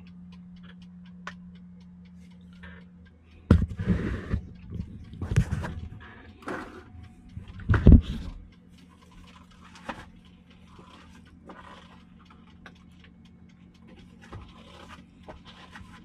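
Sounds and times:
low steady hum: 0.0 - 16.0
rustling and small scrapes: 3.5 - 8.4, 9.0 - 12.1, 13.9 - 16.0.

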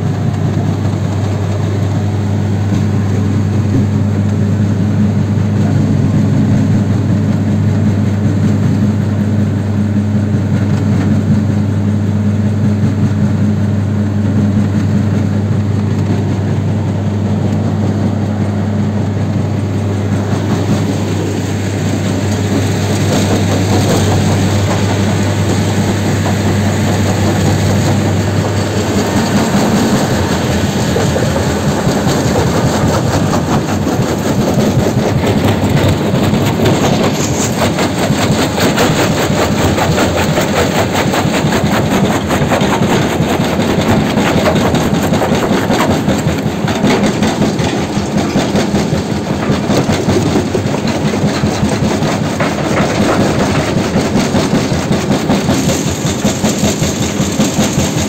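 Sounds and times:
crusher engine hum: 0.0 - 58.0
concrete rubble rattling over steel bars: 20.3 - 58.0.

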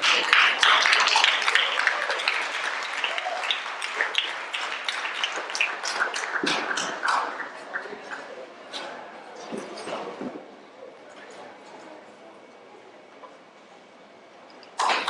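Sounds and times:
audience applauding and cheering: 0.0 - 8.2.

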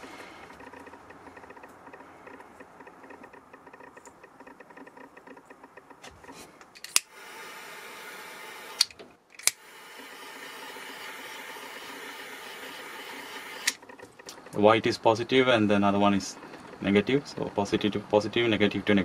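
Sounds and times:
faint fast ticking: 0.0 - 6.4, 9.6 - 19.0
torch lighter clicking: 6.8 - 7.3, 8.6 - 9.8.

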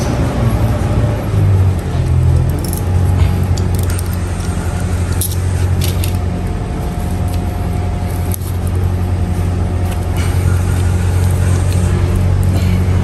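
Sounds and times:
low engine drone: 0.0 - 13.0
hand tools clicking on cable: 2.4 - 6.2.

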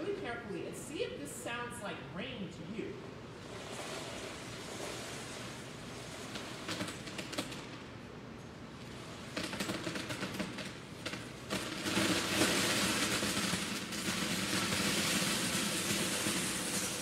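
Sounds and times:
plastic bricks clattering into tub: 9.4 - 17.0.

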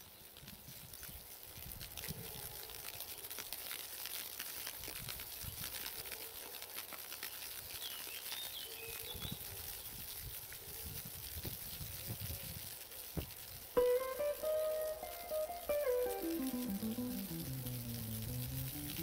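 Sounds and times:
soft pattering ticks: 0.0 - 19.0
wind rumble on microphone: 9.1 - 13.3.

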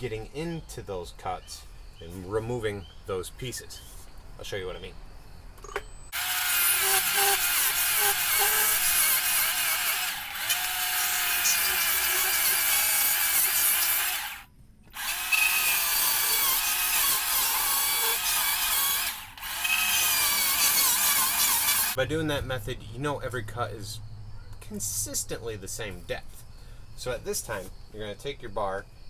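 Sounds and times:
battery chainsaw cutting wood: 6.2 - 22.0.

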